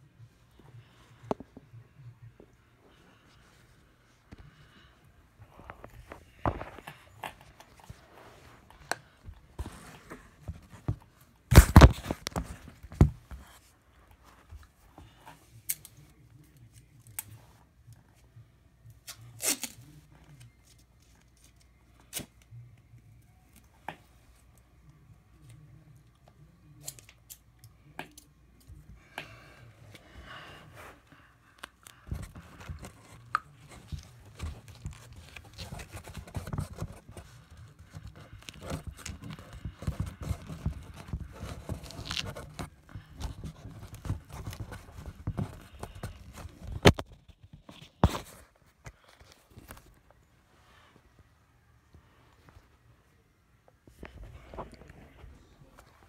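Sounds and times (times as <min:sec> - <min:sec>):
scissors cutting cardboard: 0:32.1 - 0:47.0
cardboard rustling: 0:32.1 - 0:50.0.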